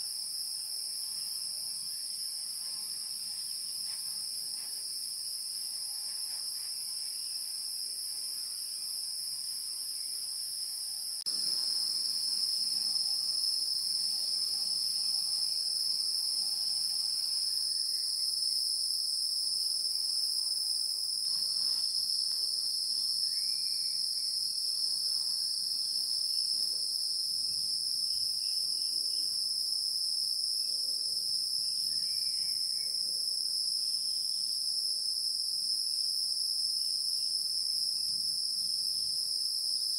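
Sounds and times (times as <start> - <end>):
insects trilling: 0.0 - 19.0, 20.0 - 29.7.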